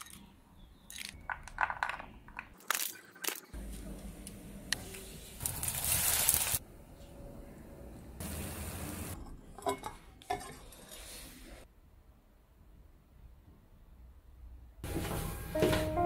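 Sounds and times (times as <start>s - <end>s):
liquid hissing in hot wok: 5.4s - 6.6s.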